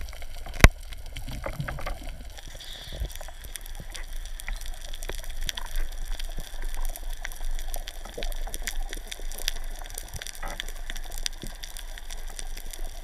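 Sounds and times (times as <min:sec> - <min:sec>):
crackling clicks underwater: 0:00.0 - 0:13.0
low rumble of moving water: 0:00.0 - 0:13.0.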